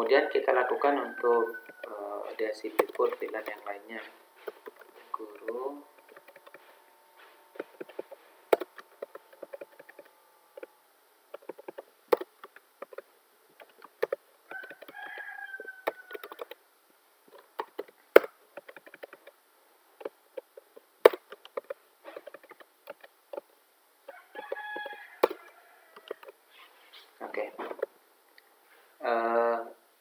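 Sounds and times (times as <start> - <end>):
keyboard typing clicks: 4.4 - 6.7, 7.6 - 10.7, 15.9 - 16.6, 17.4 - 19.3.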